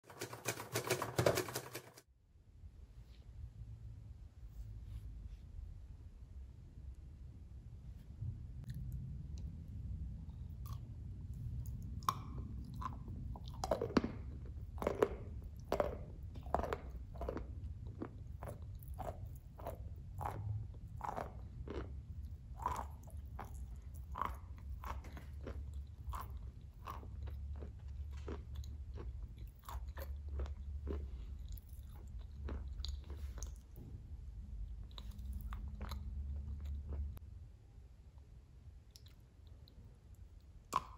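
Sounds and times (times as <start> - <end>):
crunchy chewing: 11.6 - 33.8, 34.7 - 37.2.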